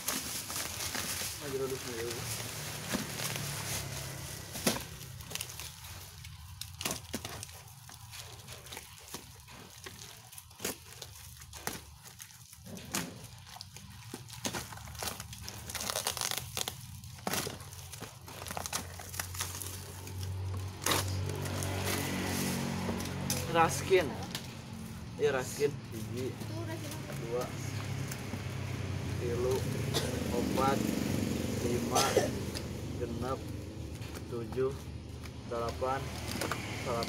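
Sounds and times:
plastic wrap crackling and ripping: 0.0s - 29.6s, 33.5s - 37.0s.

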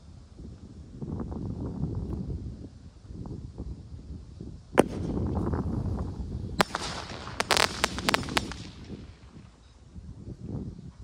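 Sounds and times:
firework bang: 4.8s - 9.4s
crackling firework pops: 4.8s - 9.6s
firework crack: 4.8s - 9.6s.

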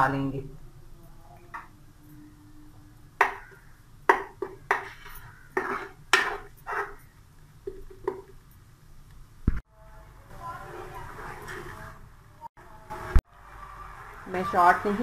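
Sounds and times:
wooden spatula scraping frying pan: 4.4s - 7.1s.

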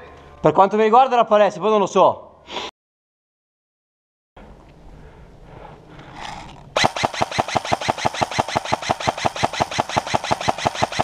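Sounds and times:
airsoft rifle full-auto burst: 6.2s - 11.0s.

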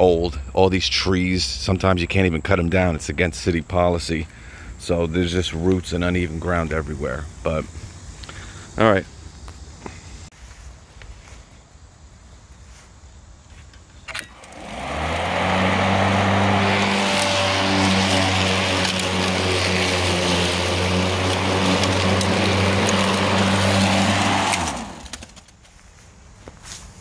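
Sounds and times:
lawn mower motor humming: 14.1s - 25.5s.

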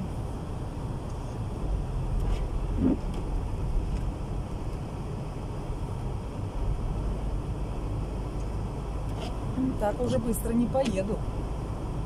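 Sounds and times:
engine and tyre rumble: 0.0s - 12.0s.

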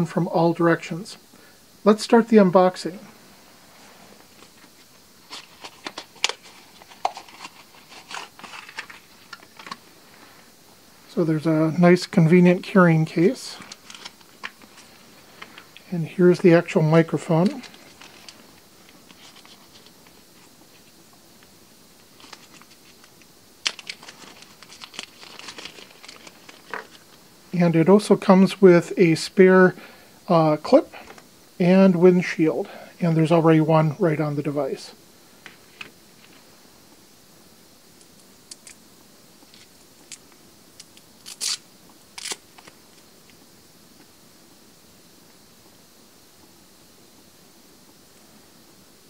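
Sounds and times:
plastic bag crinkling: 5.3s - 9.8s, 22.1s - 27.1s.

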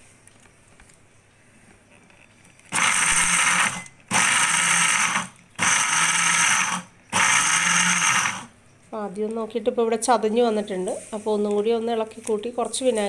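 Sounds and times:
mixer grinder pulsing: 2.7s - 8.5s.

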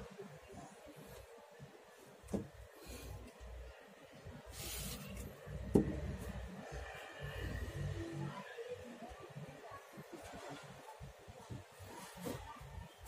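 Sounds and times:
aerosol spray hiss: 4.5s - 5.1s.

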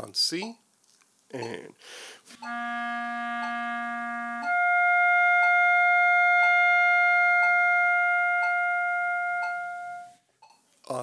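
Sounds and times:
clarinet notes: 2.3s - 10.2s
metronome ticking: 2.4s - 10.6s.

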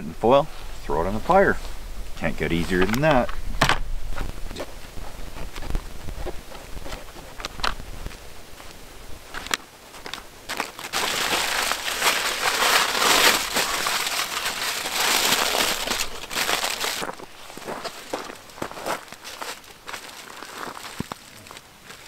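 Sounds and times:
aluminium foil crinkling: 9.4s - 22.0s.

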